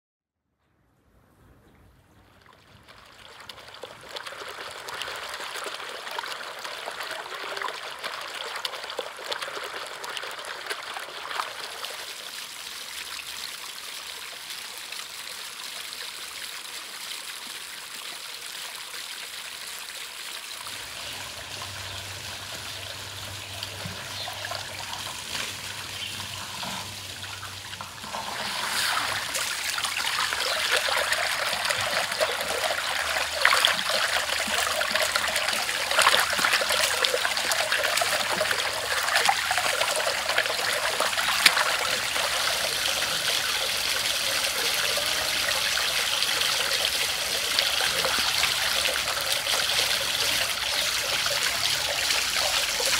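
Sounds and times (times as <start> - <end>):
water trickling over stones: 2.2 - 52.9
water jet splashing on meat: 20.7 - 52.9.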